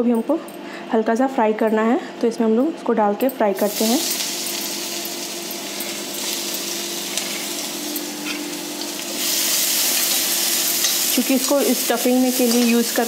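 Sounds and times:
vegetables sizzling in hot oil: 3.6 - 13.0.

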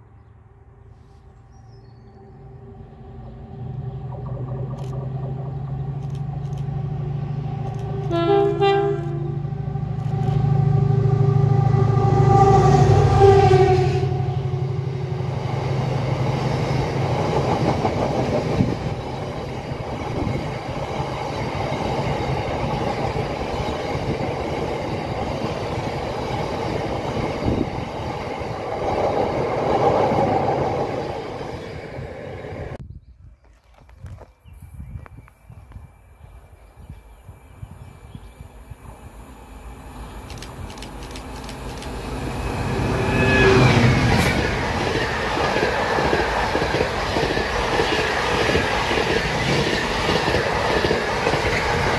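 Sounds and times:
locomotive engine drone: 0.0 - 32.8, 37.5 - 51.9
train horn blast: 7.8 - 15.4, 42.0 - 44.5.

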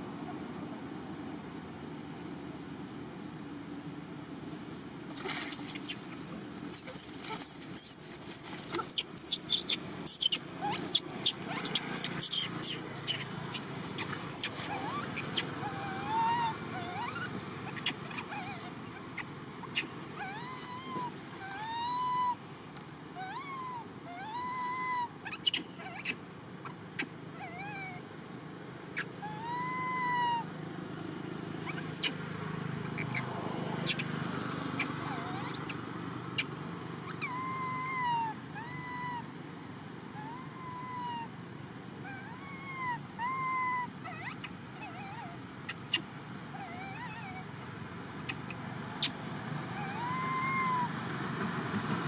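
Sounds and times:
baby monkey coo calls: 5.1 - 22.4, 23.2 - 28.0, 29.0 - 30.5, 31.6 - 39.4, 40.1 - 41.4, 42.0 - 51.0.

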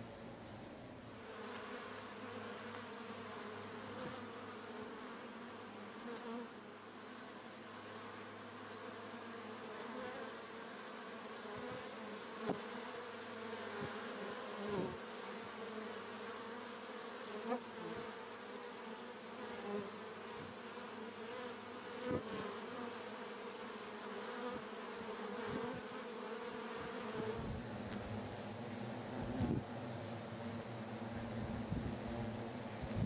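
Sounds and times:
bees buzzing: 1.2 - 27.5.

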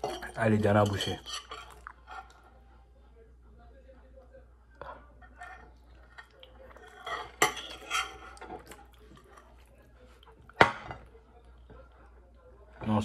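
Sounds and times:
sharp cutlery clack: 0.0 - 2.3, 6.1 - 8.8
cutlery clinking and scraping dish: 0.0 - 2.5, 4.8 - 9.8, 10.4 - 11.8.

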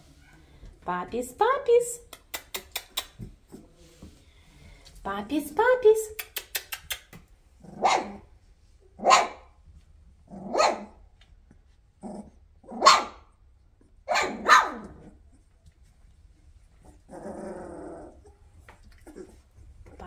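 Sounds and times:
puppies barking: 7.8 - 8.2, 9.0 - 9.4, 12.8 - 13.2, 14.1 - 15.0.

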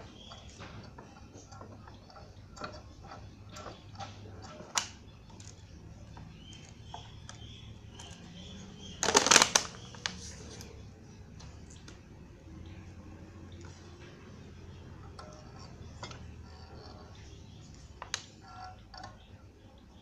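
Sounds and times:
plastic bottle crackling: 8.9 - 10.4.

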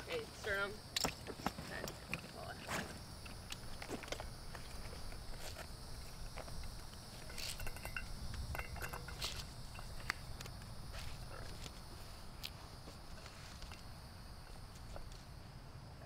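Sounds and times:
crickets chirping: 0.0 - 16.0
faint clicks and rustles: 1.0 - 15.4.

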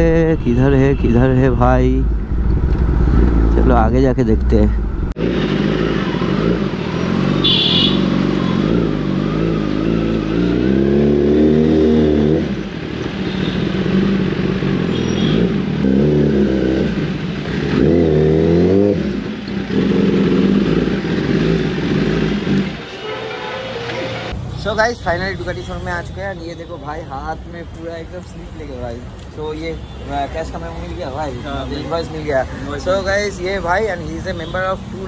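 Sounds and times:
motorcycle engine revving: 4.8 - 23.0.

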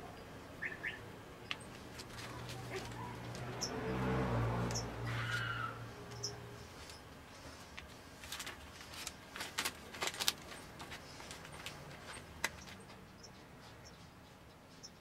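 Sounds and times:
paper crinkling and rustling: 7.5 - 12.8.

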